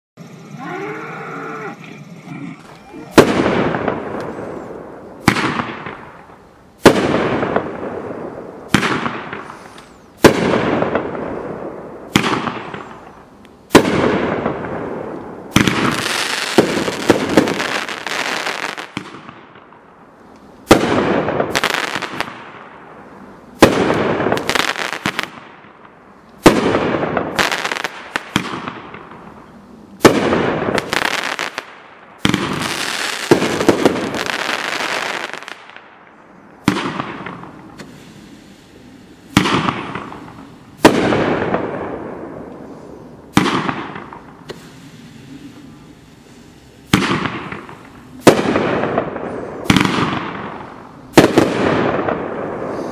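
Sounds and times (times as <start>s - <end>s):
firework bangs with crackling hiss: 3.1s - 19.8s, 20.6s - 22.8s, 23.6s - 35.9s, 36.6s - 52.9s.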